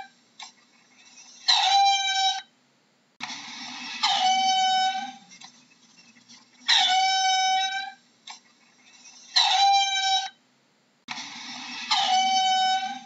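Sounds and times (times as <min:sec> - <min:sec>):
mongoose high-pitched calls: 0:06.7 - 0:08.0, 0:08.9 - 0:10.4, 0:11.7 - 0:13.0.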